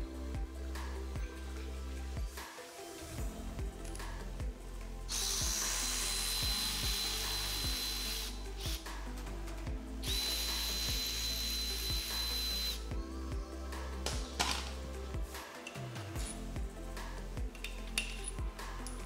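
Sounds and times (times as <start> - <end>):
electric ratchet whining: 5.1 - 8.8, 10.0 - 12.9.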